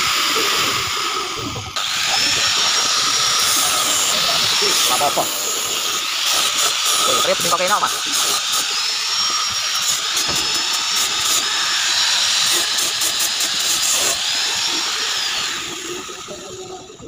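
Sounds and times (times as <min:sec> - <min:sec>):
angle grinder sanding wood: 0:00.0 - 0:16.9.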